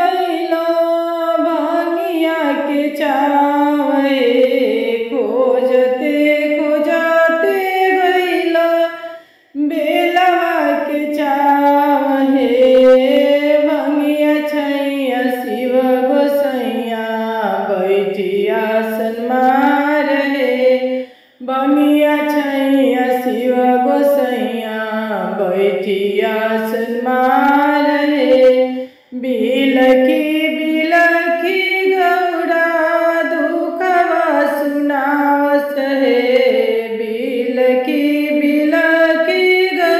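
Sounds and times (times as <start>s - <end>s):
woman singing devotional song: 0.0s - 39.9s.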